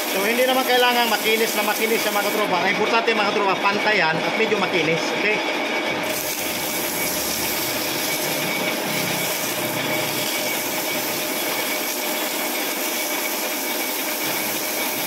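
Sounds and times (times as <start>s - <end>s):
sandpaper sanding hiss: 0.0s - 2.5s, 6.2s - 15.0s
lathe running: 0.0s - 15.0s.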